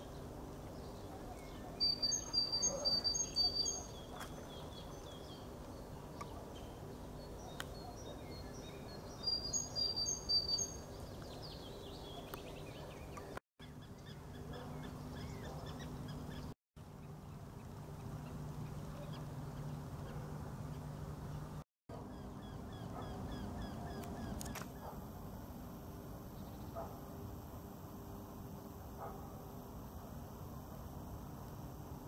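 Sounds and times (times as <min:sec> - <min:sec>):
low distant background hum: 0:00.0 - 0:32.0
songbird singing high notes: 0:01.7 - 0:04.1.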